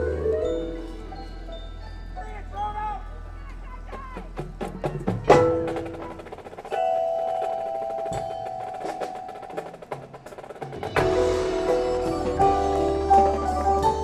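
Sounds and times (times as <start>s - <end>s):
held chord: 11.0s - 14.0s.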